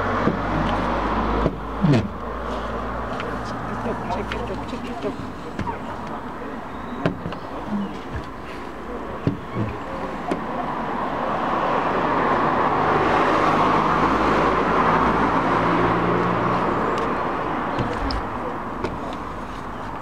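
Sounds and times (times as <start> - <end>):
small knocks: 7.0 - 8.4, 9.2 - 10.5.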